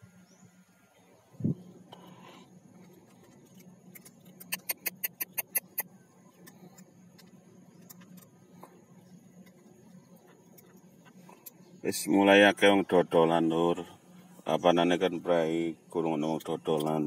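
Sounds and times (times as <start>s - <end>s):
faint low hum: 0.0s - 17.0s
kittens crunching dry food: 1.9s - 11.7s.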